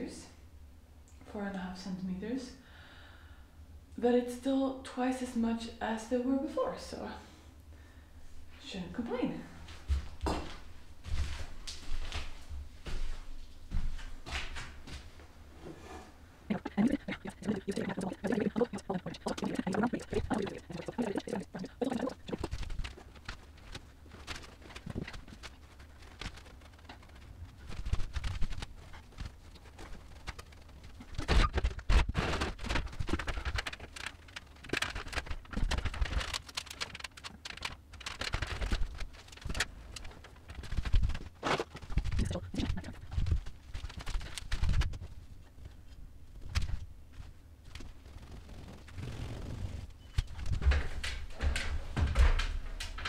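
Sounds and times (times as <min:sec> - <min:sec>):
building work knocks and thumps: 0:50.2 - 0:53.0.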